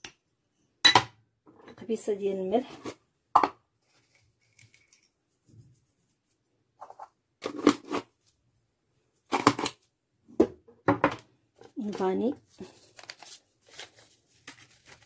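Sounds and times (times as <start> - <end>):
sugar sachet rustling open: 11.9 - 15.0.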